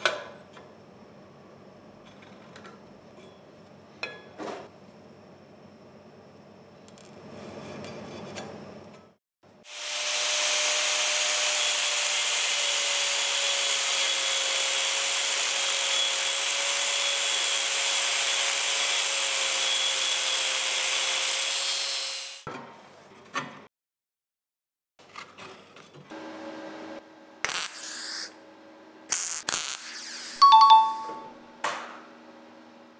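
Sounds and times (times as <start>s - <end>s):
angle grinder cutting steel: 9.7s - 22.5s.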